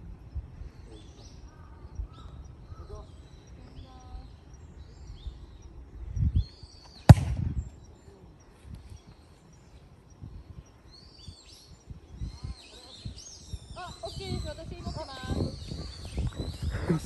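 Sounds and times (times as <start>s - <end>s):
birds chirping faintly: 0.0s - 17.0s
ball kicked hard: 7.1s - 7.6s.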